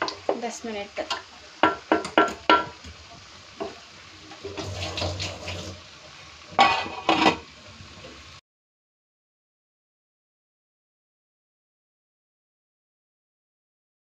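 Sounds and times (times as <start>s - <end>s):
pot lid clanking: 6.6s - 7.5s.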